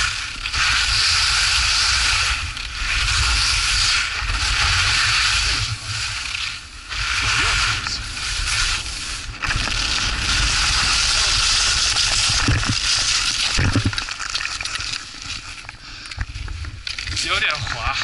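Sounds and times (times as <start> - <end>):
wind rumbling on microphone: 0.0 - 14.0
skis scraping over snow: 0.0 - 15.6, 16.9 - 18.0.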